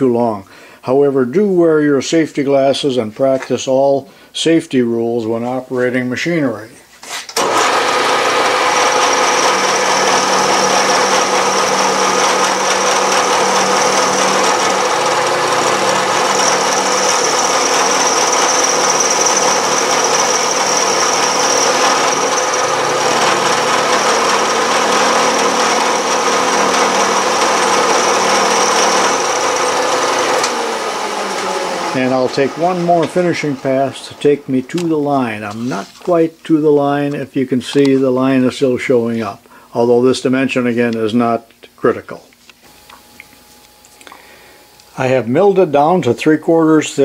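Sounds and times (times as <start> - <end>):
milling machine cutting metal: 7.4 - 34.9.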